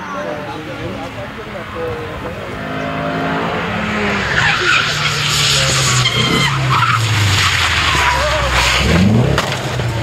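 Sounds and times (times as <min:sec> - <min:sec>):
rally car engine revving: 0:00.3 - 0:10.0
tyres squealing on tarmac: 0:01.6 - 0:09.3.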